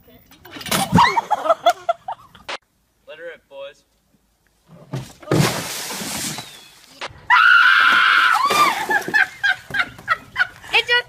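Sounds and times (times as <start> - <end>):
woman shrieking with laughter: 0.9 - 1.6
water crashing and splashing: 5.2 - 6.9
woman screaming: 7.3 - 8.8.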